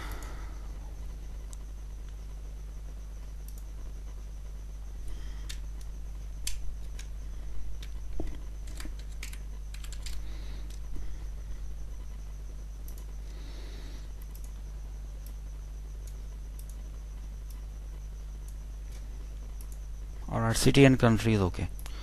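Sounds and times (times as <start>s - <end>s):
low electrical hum: 0.0s - 22.0s
computer keyboard typing: 6.4s - 7.1s, 7.7s - 10.8s.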